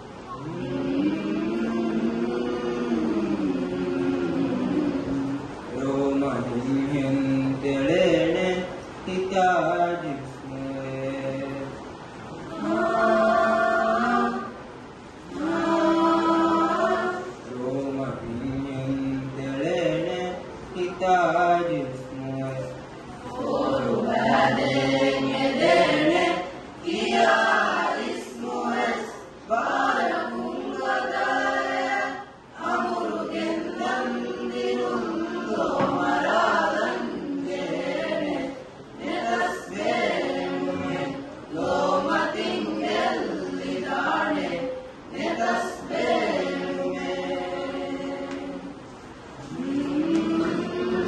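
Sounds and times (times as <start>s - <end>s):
children singing unaccompanied: 12.3s - 18.2s, 23.2s - 48.8s, 49.4s - 51.0s.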